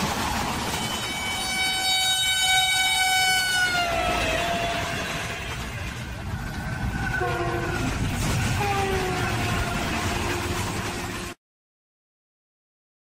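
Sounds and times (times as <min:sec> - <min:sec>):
train rumbling at speed: 0:00.0 - 0:11.4
train horn blast: 0:00.8 - 0:06.0, 0:07.1 - 0:11.4.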